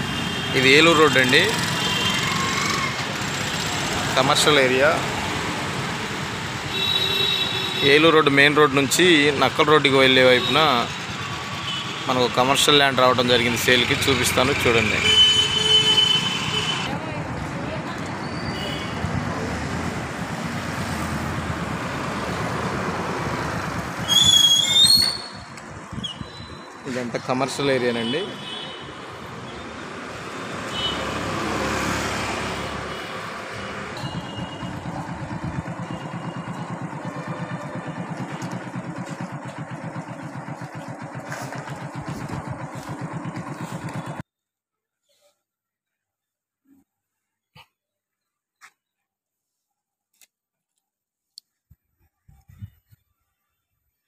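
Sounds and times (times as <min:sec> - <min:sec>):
vehicle road and wind noise: 0:00.0 - 0:10.0, 0:10.6 - 0:44.2
street noise: 0:00.0 - 0:44.2
loud high-pitched squeal: 0:00.8 - 0:03.1, 0:24.0 - 0:26.7
small motorcycle engine puttering: 0:00.8 - 0:06.3, 0:08.9 - 0:15.3, 0:23.2 - 0:27.0, 0:33.5 - 0:44.2.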